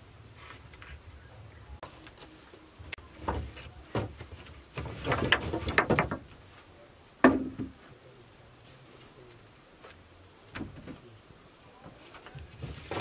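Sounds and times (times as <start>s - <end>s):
wooden poles knocking and clattering: 3.0s - 6.6s, 7.2s - 7.8s, 10.5s - 11.1s, 11.8s - 13.0s.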